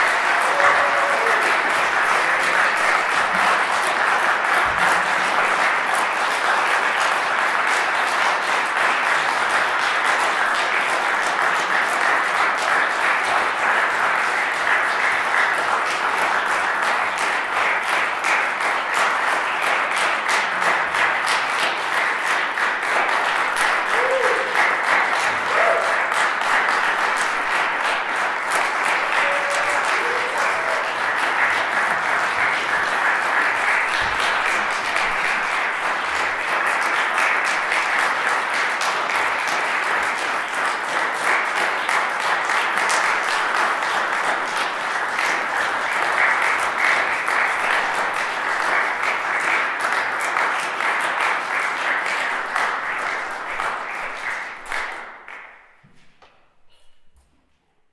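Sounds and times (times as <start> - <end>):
audience applauding: 0.0 - 55.8.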